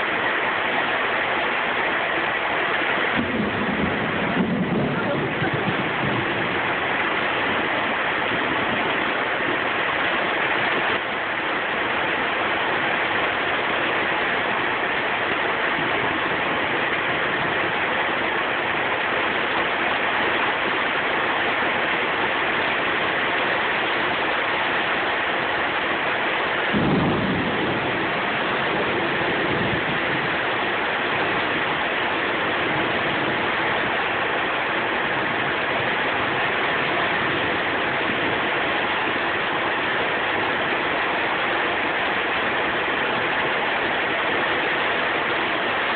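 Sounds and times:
heavy rain falling: 0.0s - 45.9s
low rumble of thunder: 3.1s - 9.0s, 26.7s - 34.0s.

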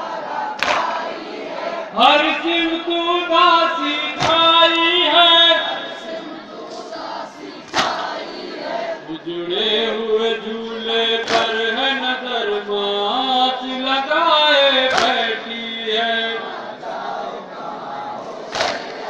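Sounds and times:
devotional chanting over loudspeakers: 0.0s - 19.0s
sharp loud knocks: 4.2s - 4.7s, 11.2s - 11.7s, 14.9s - 15.3s.

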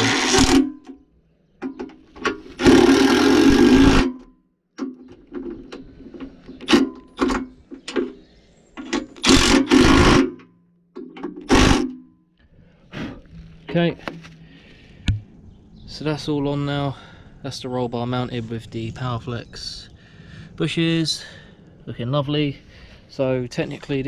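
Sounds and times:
impact driver bursts: 0.0s - 0.8s, 2.4s - 4.2s, 9.0s - 10.4s, 11.4s - 12.0s.

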